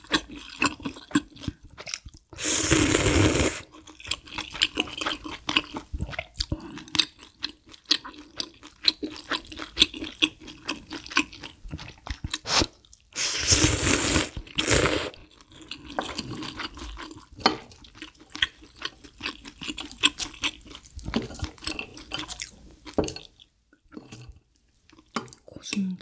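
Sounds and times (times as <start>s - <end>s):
chewing and mouth clicks: 0.0s - 2.4s, 3.6s - 13.2s, 15.2s - 25.8s
loud noodle slurp: 2.4s - 3.7s, 12.3s - 15.3s.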